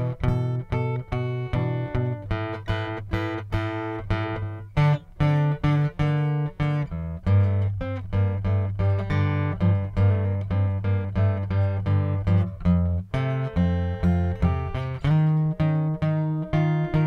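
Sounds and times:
acoustic guitar melody: 0.0 - 17.0.

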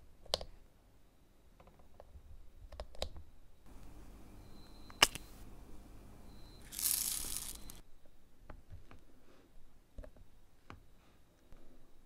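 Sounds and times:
small beads rattling out of plastic pot: 6.6 - 7.8.

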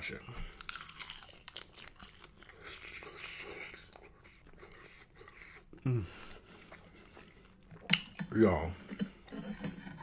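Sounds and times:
person chewing food: 0.4 - 10.0
wet mouth sounds: 1.9 - 8.4
person humming: 5.8 - 6.1.

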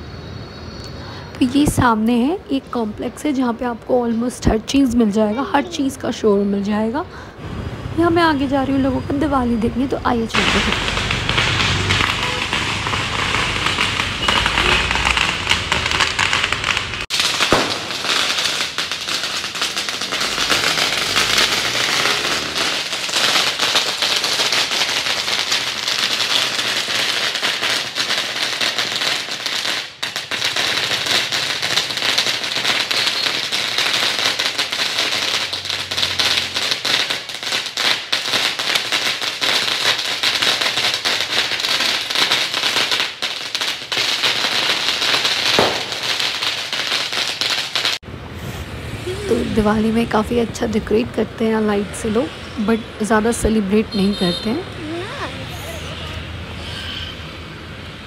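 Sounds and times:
firecrackers crackling: 0.9 - 58.0.

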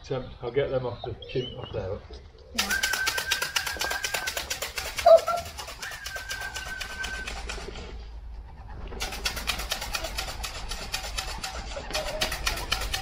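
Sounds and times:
fast even rattling: 2.6 - 7.9, 9.0 - 13.0.

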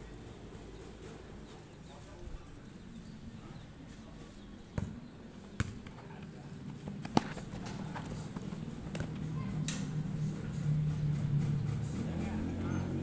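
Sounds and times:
ball kicked with sharp thuds: 4.7 - 5.0, 5.6 - 6.0, 6.7 - 9.3.

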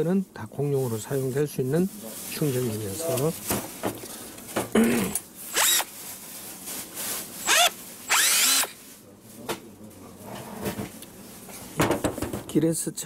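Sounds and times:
cordless drill whirring: 5.5 - 5.9, 7.4 - 8.8.

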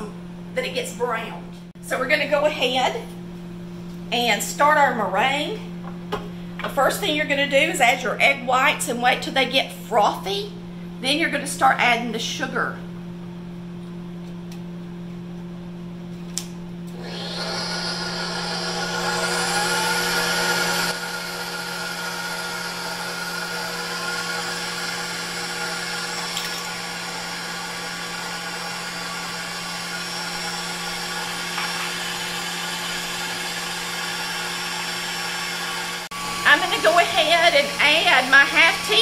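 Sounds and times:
stand mixer motor whine: 16.9 - 39.0.

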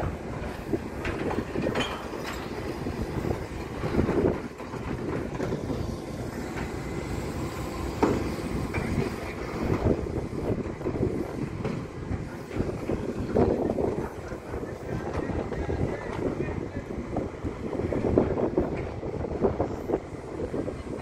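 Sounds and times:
garbage truck running: 0.0 - 21.0
metal clanks and knocks: 1.0 - 2.7.

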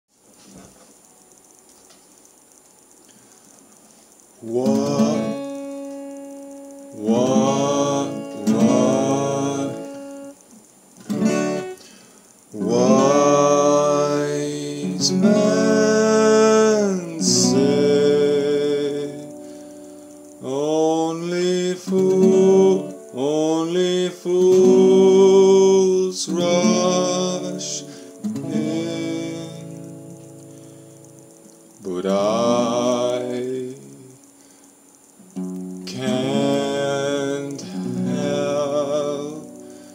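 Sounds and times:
man singing: 4.4 - 6.0, 6.9 - 10.4, 12.5 - 19.5, 20.4 - 30.2, 31.8 - 34.2, 35.8 - 39.9
acoustic guitar strummed: 4.4 - 10.4, 11.0 - 34.6, 35.2 - 39.9.

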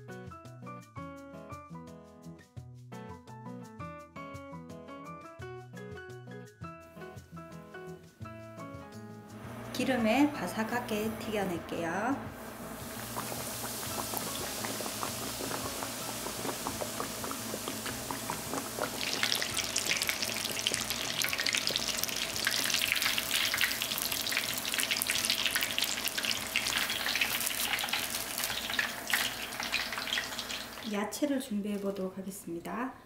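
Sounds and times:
cutlet deep-frying in hot oil: 9.7 - 32.2.

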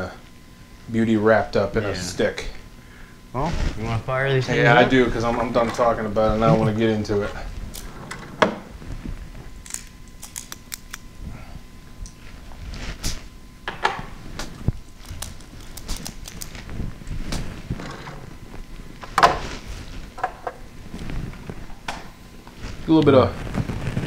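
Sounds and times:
rustling: 7.3 - 10.7, 12.1 - 13.4, 14.2 - 24.0.

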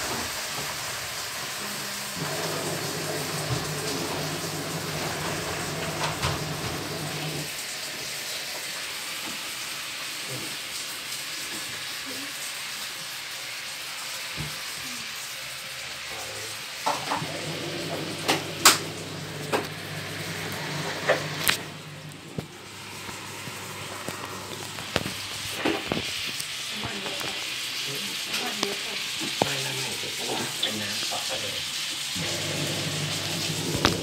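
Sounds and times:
washing machine drum motor humming: 0.0 - 9.4, 16.8 - 27.4, 32.2 - 34.0
wet laundry tumbling: 2.2 - 7.5, 17.2 - 27.3, 32.2 - 34.0.

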